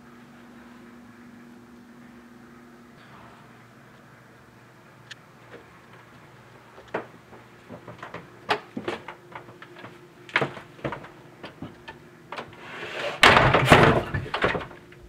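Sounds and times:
slow uneven footsteps: 5.4s - 12.0s
small knocks and clicks: 6.8s - 12.6s.

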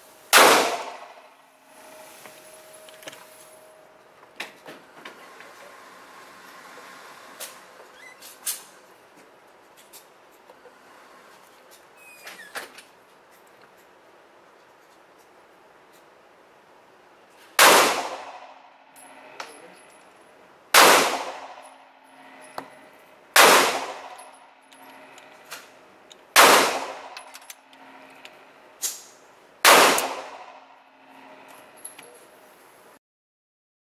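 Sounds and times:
gunshots echoing indoors: 0.3s - 1.3s, 17.6s - 18.7s, 20.7s - 21.9s, 23.3s - 24.4s, 26.3s - 27.2s, 29.6s - 30.8s
gun handling clicks: 26.1s - 29.0s.

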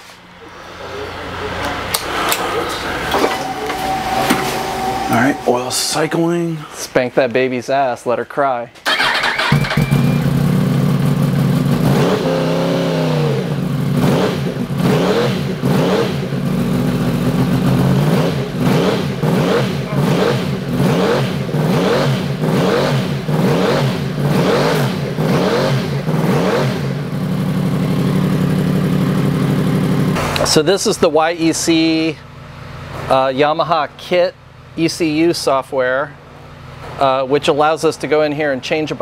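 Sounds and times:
motorcycle engine revving and idling: 8.9s - 30.4s.

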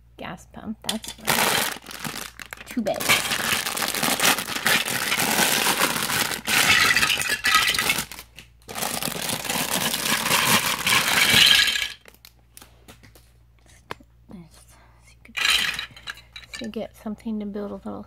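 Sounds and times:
plastic bricks clattering: 0.9s - 12.3s, 15.4s - 16.8s
plastic bags crinkling: 0.9s - 12.7s, 15.4s - 16.7s.

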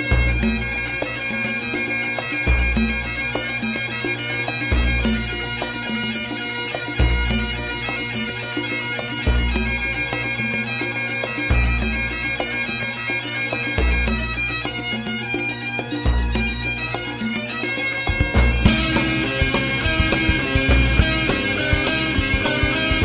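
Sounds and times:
bagpipe music with drone: 0.0s - 23.0s
deep bass beat: 0.1s - 1.0s, 4.7s - 5.6s, 7.0s - 7.9s, 9.3s - 9.9s, 18.1s - 23.0s.

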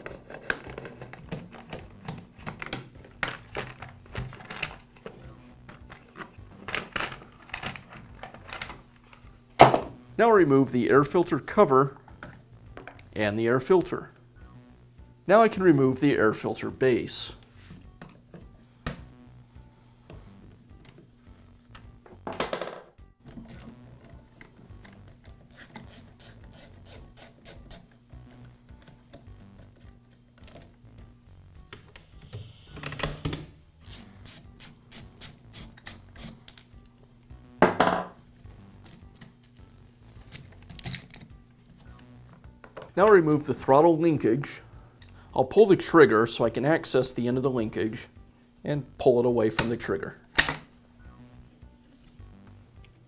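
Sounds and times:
socket ratchet clicking: 25.0s - 27.9s, 33.8s - 36.6s.

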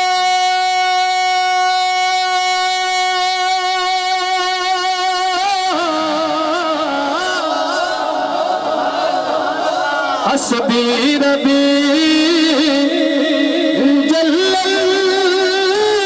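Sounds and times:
man singing through loudspeaker: 0.0s - 16.0s.

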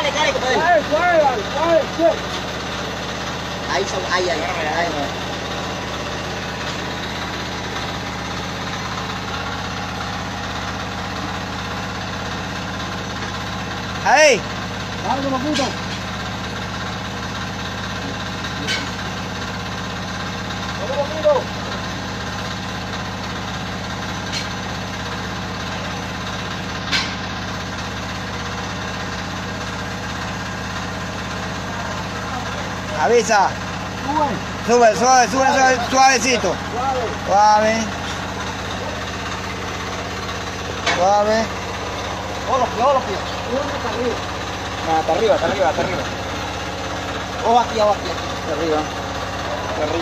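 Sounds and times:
engine idling: 0.0s - 50.0s.

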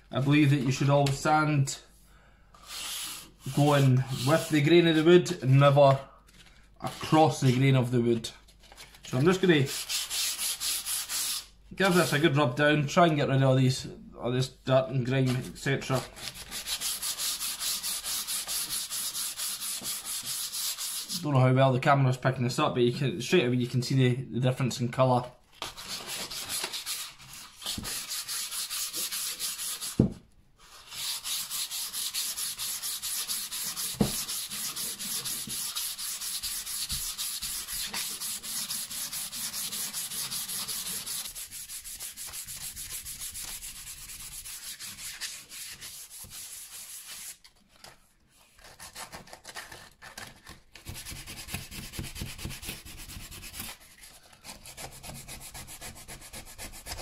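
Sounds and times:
sandpaper rubbing on wood: 2.7s - 4.7s, 9.6s - 12.2s, 16.2s - 21.2s, 25.8s - 30.0s, 30.6s - 47.4s, 50.8s - 53.8s, 54.4s - 57.0s.

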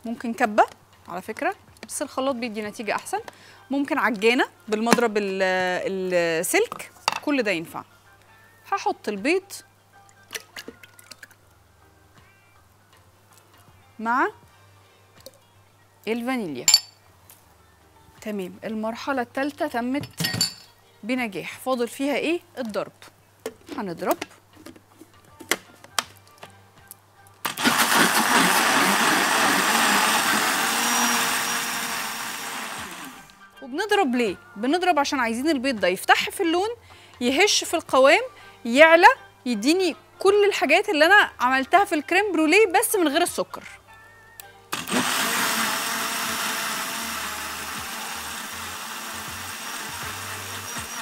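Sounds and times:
electric blender running: 27.5s - 33.4s, 44.8s - 51.0s.

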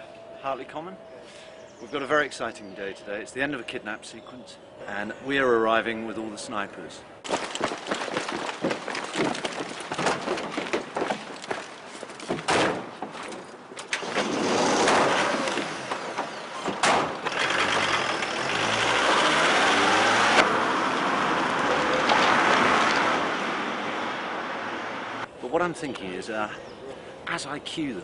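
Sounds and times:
sharp knocks: 14.8s - 17.3s.

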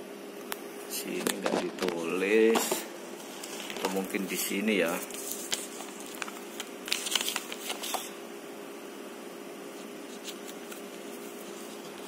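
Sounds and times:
packaging rustling and clicking: 3.4s - 4.2s, 4.9s - 8.1s.

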